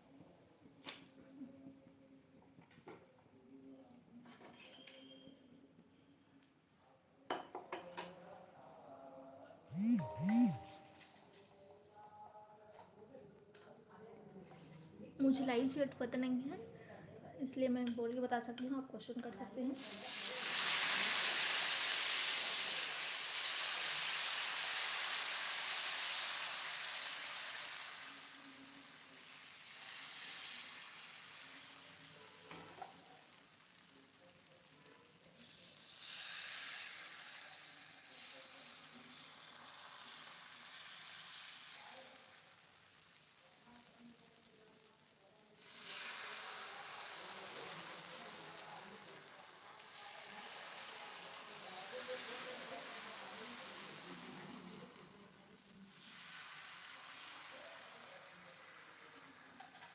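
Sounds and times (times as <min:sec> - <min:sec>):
batter sizzling on hot pan: 0:19.8 - 0:59.9.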